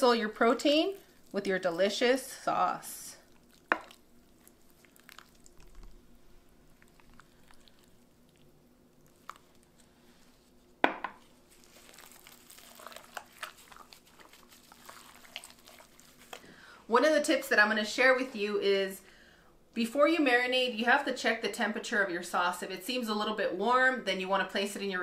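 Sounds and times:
wet squelching of marinade: 0.0 - 10.6, 11.4 - 16.6
faint steady hum: 0.0 - 25.0.

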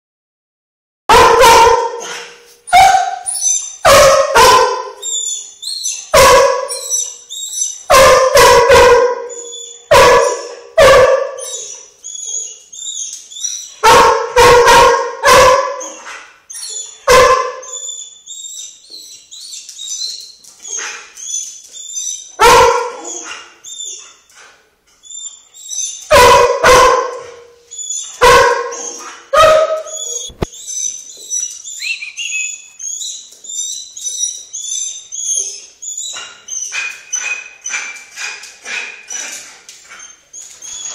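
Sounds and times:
dog barking: 1.1 - 5.0, 6.1 - 7.0, 7.9 - 11.7, 13.8 - 16.2, 17.0 - 17.8, 22.4 - 23.6, 26.1 - 27.6, 28.2 - 30.5
dog whining: 2.0 - 3.8, 4.9 - 7.9, 9.2 - 10.6, 11.4 - 13.8, 15.8 - 24.2, 25.0 - 26.2, 27.6 - 37.8, 39.1 - 40.9.

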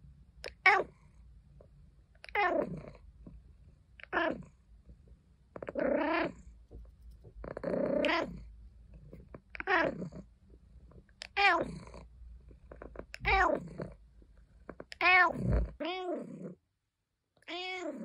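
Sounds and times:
cat meowing: 0.5 - 1.0, 7.9 - 8.4, 11.2 - 11.8, 13.2 - 13.8, 14.9 - 16.2, 17.4 - 18.0.

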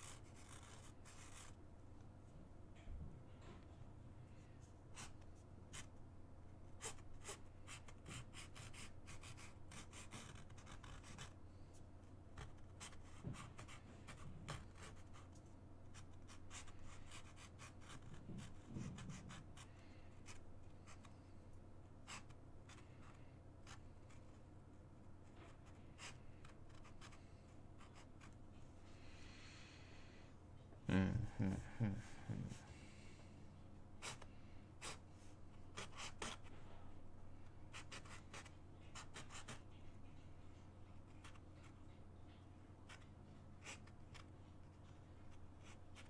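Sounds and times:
marker scratching on canvas: 0.0 - 1.6, 22.1 - 24.3, 34.0 - 35.0, 35.7 - 36.6, 37.7 - 40.2, 42.9 - 45.0
low steady hum: 0.0 - 46.0.

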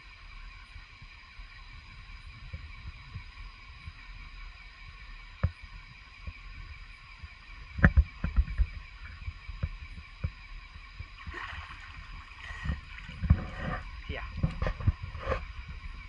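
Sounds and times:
water splashing in stream: 11.2 - 13.8.

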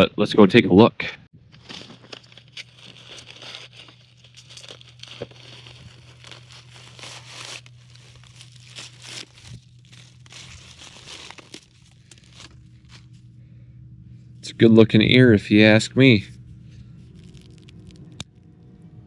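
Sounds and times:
steady low hum: 0.9 - 19.0
dry corn husks ripping: 1.5 - 13.2, 16.7 - 18.3.

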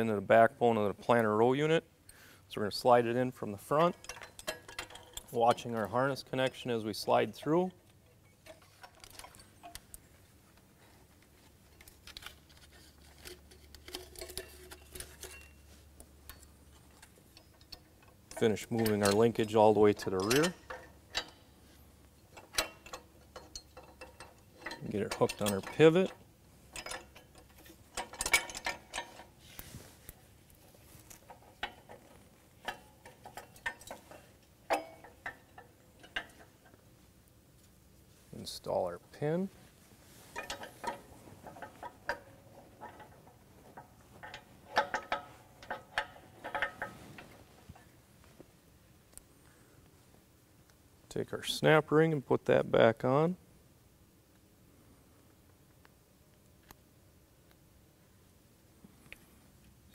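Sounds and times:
metal parts clicking and knocking: 3.6 - 6.6, 7.8 - 10.0, 11.5 - 21.5, 22.1 - 29.4, 31.0 - 36.8, 40.3 - 47.9.

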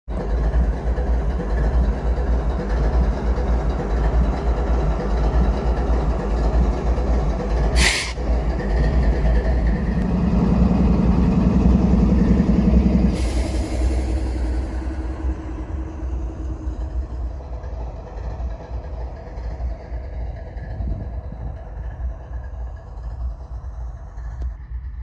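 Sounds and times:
locomotives idling rumble: 0.1 - 25.0
sharp hiss of air: 7.8 - 8.2.

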